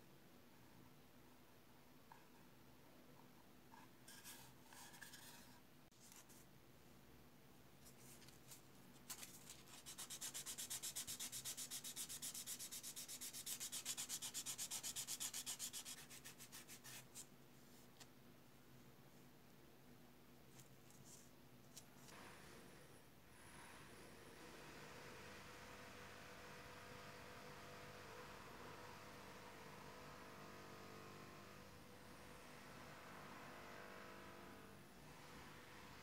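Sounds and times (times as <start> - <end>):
sanding block scraping plastic: 9.5 - 17.1.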